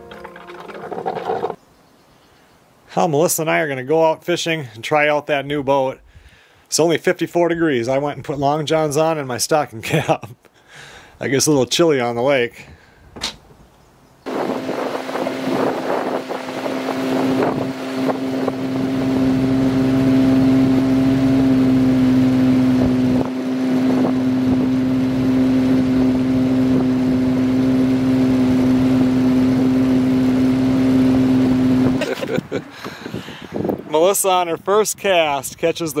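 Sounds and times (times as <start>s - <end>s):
outboard boat motor running: 0.0s - 1.6s, 14.3s - 33.4s.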